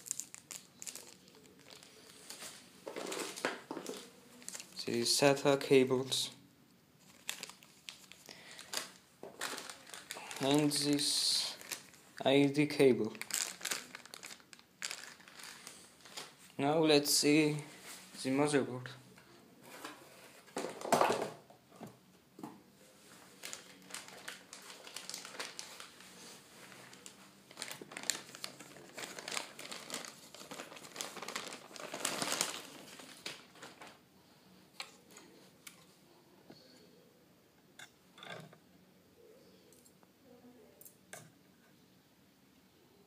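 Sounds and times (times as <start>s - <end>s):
paper rustling in box: 0.0s - 4.8s, 7.0s - 12.0s, 23.2s - 34.0s
plastic bag crinkling: 0.0s - 4.9s, 7.0s - 16.6s, 23.2s - 34.0s.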